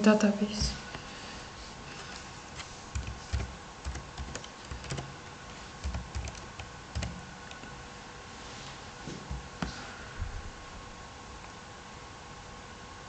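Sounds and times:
keyboard typing clicks: 2.9s - 7.7s.

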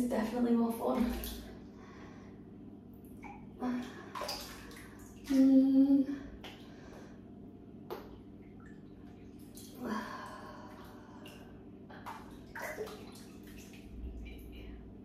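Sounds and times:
slime sloshing and squelching: 8.0s - 14.2s.

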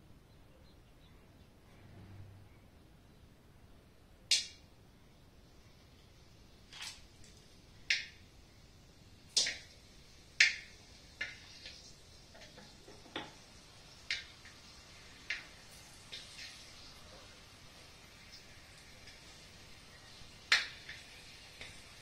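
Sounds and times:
spices popping in hot oil: 4.2s - 4.8s, 5.5s - 22.0s.

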